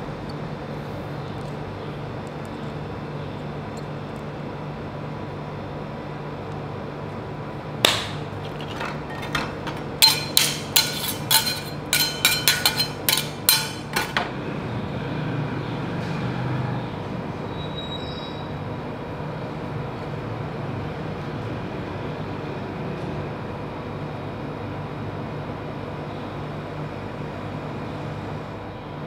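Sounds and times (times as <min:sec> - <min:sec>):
steady low hum: 0:00.0 - 0:15.7.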